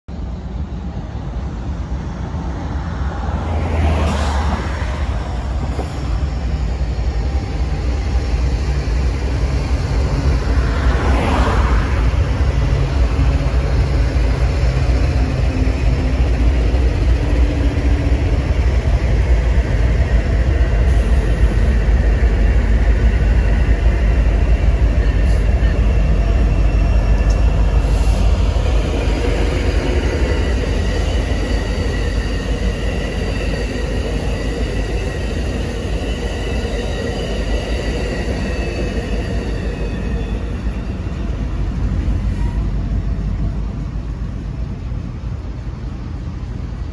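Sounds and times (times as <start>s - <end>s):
freight train rumbling: 0.0s - 46.9s
passenger train passing: 0.1s - 46.9s
high brake squeal: 29.6s - 42.9s.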